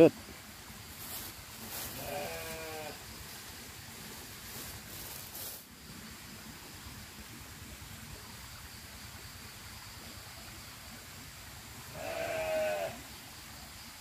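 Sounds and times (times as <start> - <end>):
farm animal bleating: 1.8 - 3.0, 11.9 - 13.0.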